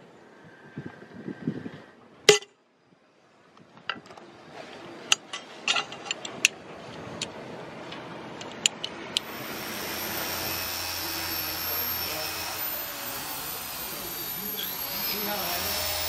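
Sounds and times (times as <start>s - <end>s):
machine hum with high whine: 9.2s - 16.0s.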